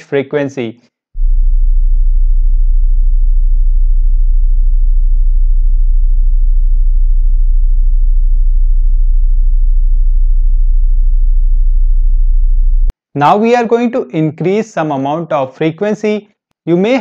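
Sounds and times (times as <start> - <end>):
very low sine tone hum: 1.2 - 12.9.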